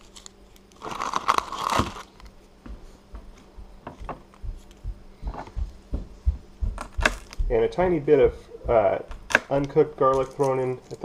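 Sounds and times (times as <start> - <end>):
garlic skin crinkling and tearing: 0.0 - 2.4.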